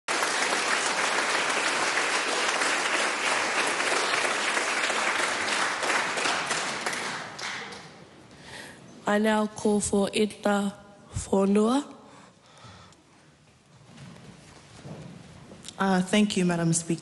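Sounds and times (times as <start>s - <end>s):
roomful of people applauding: 0.0s - 8.1s.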